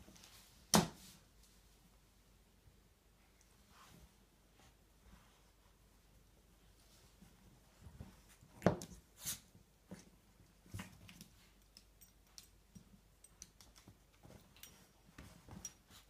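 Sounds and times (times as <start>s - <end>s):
light clicks of paws: 6.8s - 16.0s.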